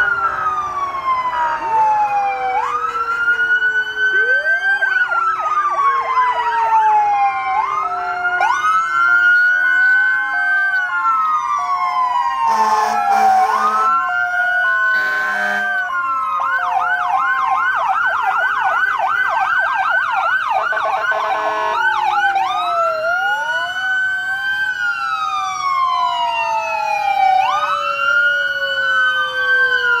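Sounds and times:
siren fast yelp: 0.0s - 30.0s
sirens wailing: 0.0s - 30.0s
two-note hi-lo siren: 5.8s - 16.8s, 20.4s - 30.0s
horn blasts: 12.5s - 14.0s, 14.9s - 15.8s, 21.1s - 21.9s.

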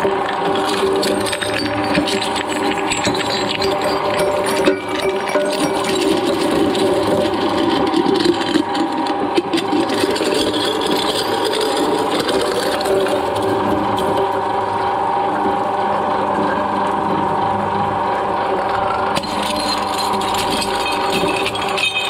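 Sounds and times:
shredder mechanical drone: 0.0s - 22.0s
glass bottle cracking in blades: 19.2s - 22.0s.

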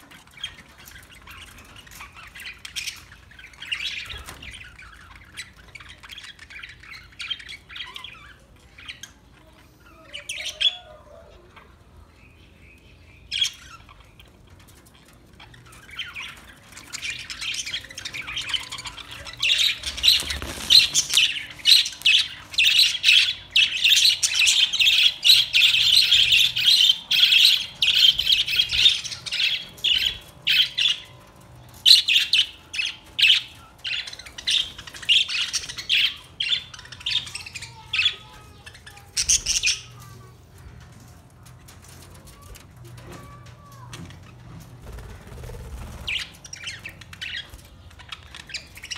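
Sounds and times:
budgerigars chattering and squawking: 13.3s - 40.2s, 44.8s - 48.9s.

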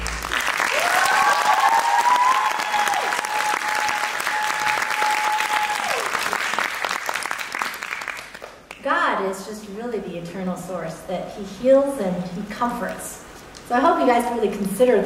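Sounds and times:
audience applauding: 0.0s - 8.8s
long rising cheer: 0.2s - 6.7s.

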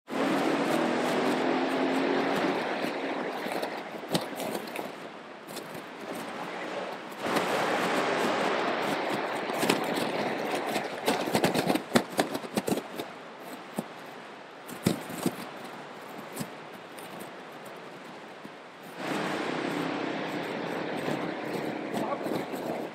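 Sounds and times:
vehicles driving through floodwater: 0.1s - 11.9s, 18.8s - 22.9s
bicycle splashing through water: 0.1s - 12.8s, 18.9s - 22.9s.

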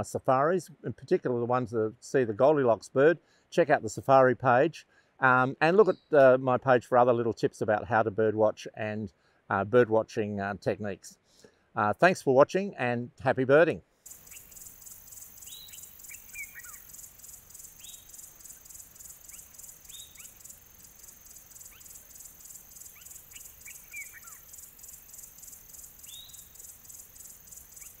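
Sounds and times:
insects trilling: 14.0s - 28.0s
bird calls: 14.1s - 28.0s.

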